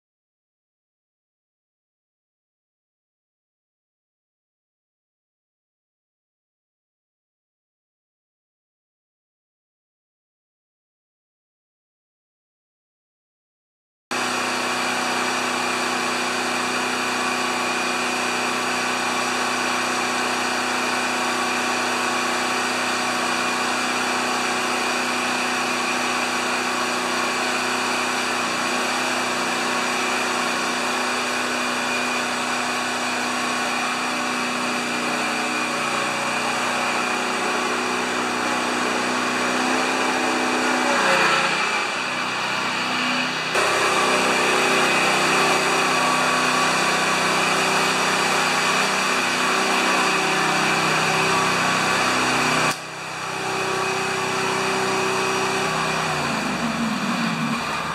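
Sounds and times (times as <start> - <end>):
riding mower engine running: 14.1 - 57.9.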